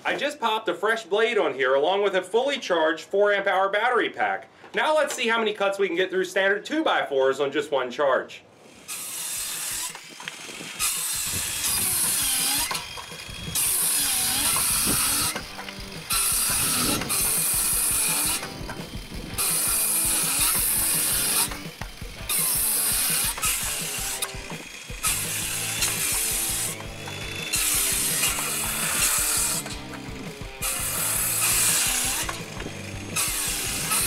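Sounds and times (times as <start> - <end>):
circular saw cutting wood: 8.6 - 34.0
saw motor winding down and up: 8.6 - 34.0.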